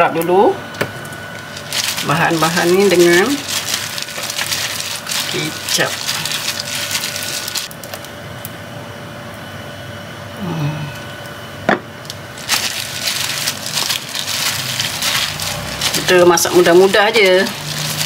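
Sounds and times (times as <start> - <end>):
wet squishing of mixing: 1.4 - 8.0, 12.3 - 18.0
plastic glove crinkling: 1.4 - 8.2, 12.1 - 18.0.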